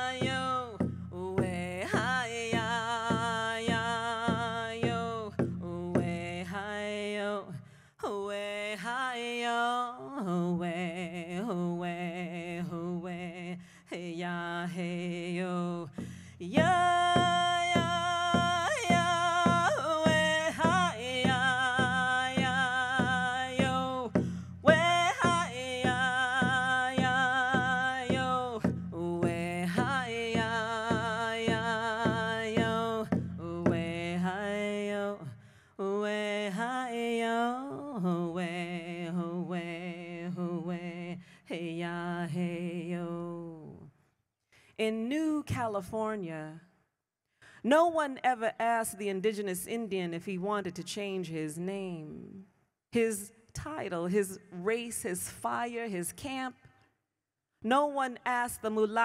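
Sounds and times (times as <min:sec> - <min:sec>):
hand drum beat: 0:00.0 - 0:06.3, 0:16.6 - 0:34.1
woman singing: 0:00.0 - 0:43.9, 0:44.8 - 0:46.7, 0:47.7 - 0:56.6, 0:57.6 - 0:59.0.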